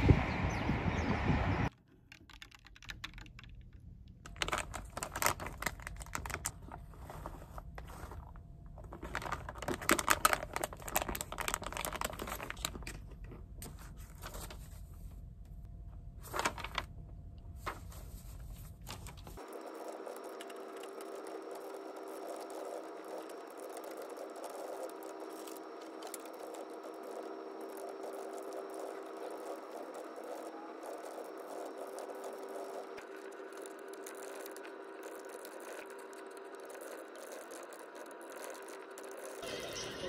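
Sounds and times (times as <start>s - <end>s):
typing on computer keyboard: 2.1s - 3.7s.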